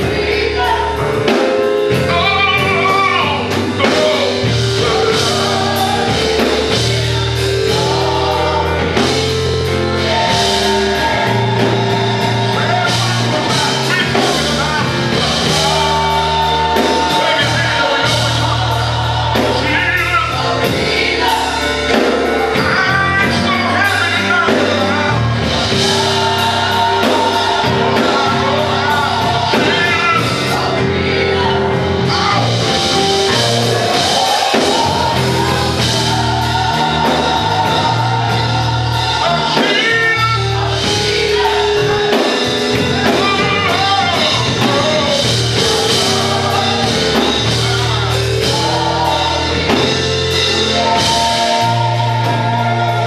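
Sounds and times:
church band playing: 0:00.0 - 0:53.0
people singing gospel: 0:00.0 - 0:53.0.

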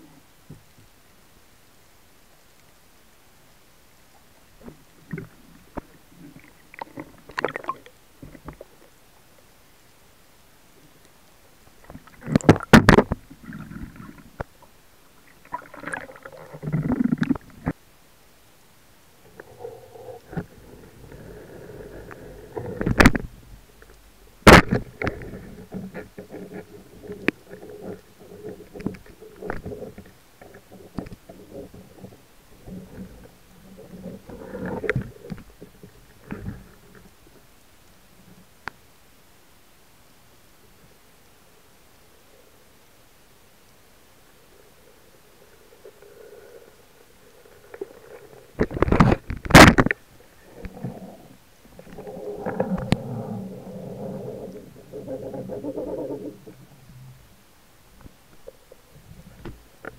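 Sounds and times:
muffled underwater knocks and clicks: 0:11.8 - 0:14.6, 0:22.6 - 0:23.4, 0:24.5 - 0:33.2, 0:48.6 - 0:50.0
low underwater rumble: 0:50.2 - 0:57.5.

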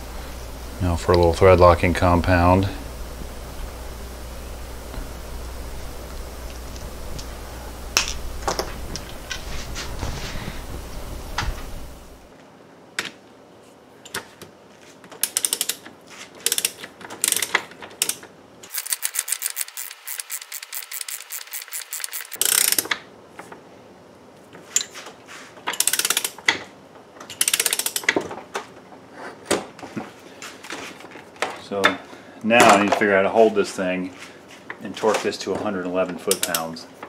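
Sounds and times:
ratchet wrench clicking: 0:15.2 - 0:15.8, 0:16.4 - 0:22.9, 0:25.8 - 0:26.4, 0:27.3 - 0:28.0.

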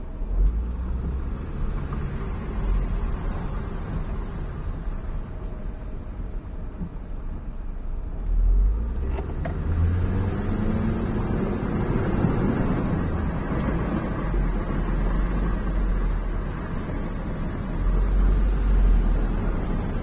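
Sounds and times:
car engine rumble: 0:00.0 - 0:20.0.

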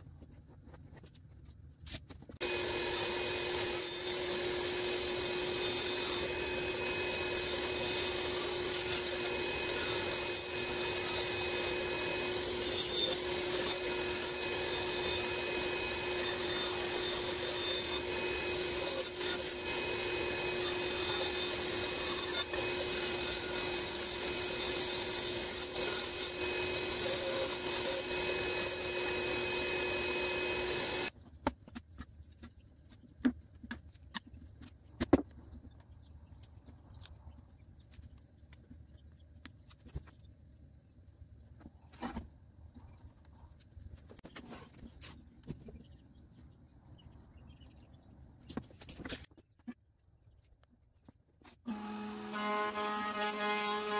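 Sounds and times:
bandsaw cutting wood: 0:02.4 - 0:31.1, 0:51.7 - 0:53.9.

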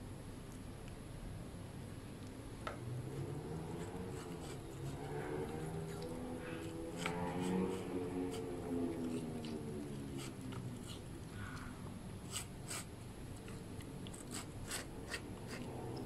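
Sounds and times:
dog chewing and licking: 0:03.8 - 0:11.4.

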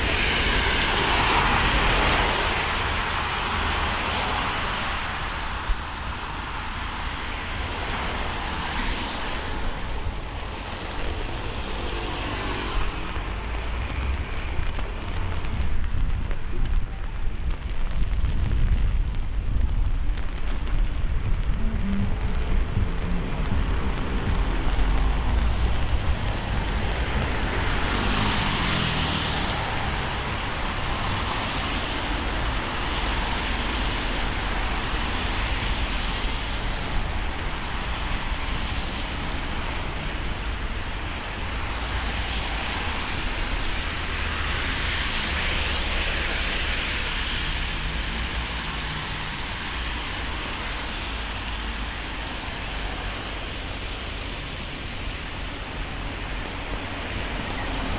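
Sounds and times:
steady rain: 0:00.0 - 0:57.9
vehicles swishing on wet road: 0:00.0 - 0:57.9
low engine rumble: 0:12.9 - 0:28.0.

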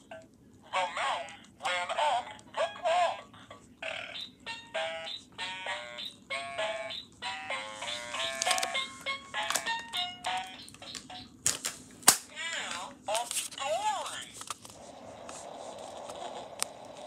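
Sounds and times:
toy playing beeping tune: 0:03.8 - 0:11.4.

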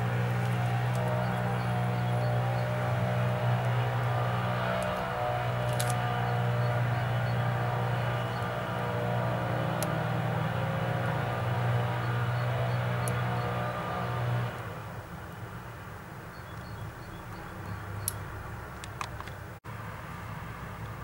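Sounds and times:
leaf blower engine droning: 0:00.0 - 0:15.1.

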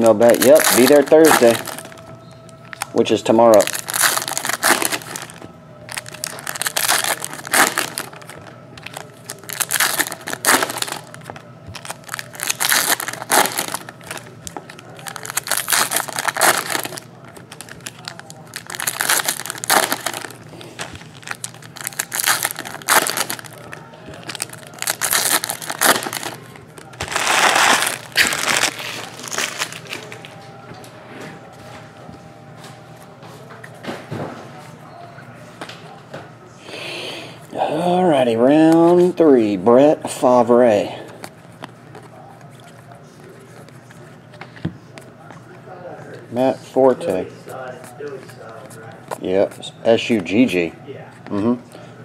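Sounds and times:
foil wrappers crinkling and tearing: 0:00.0 - 0:30.3.

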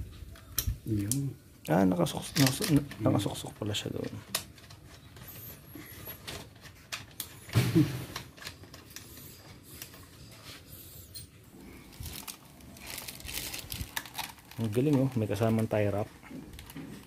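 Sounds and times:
clicks and rustling of plastic parts: 0:02.0 - 0:10.1, 0:11.9 - 0:17.0.

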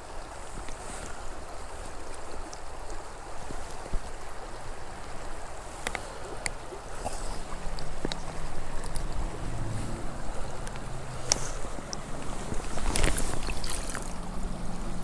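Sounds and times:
creek running over stones: 0:00.0 - 0:15.0.

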